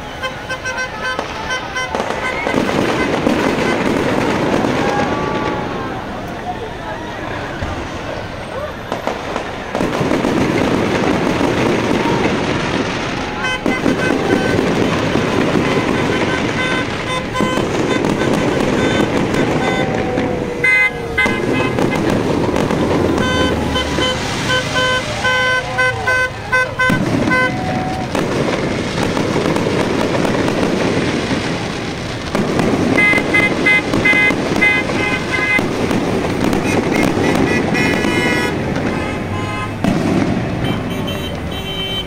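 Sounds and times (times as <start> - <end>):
vehicle horns honking: 0.0 - 4.4, 13.3 - 28.0, 32.9 - 35.8, 36.5 - 42.0
fireworks crackling and popping: 0.0 - 42.0.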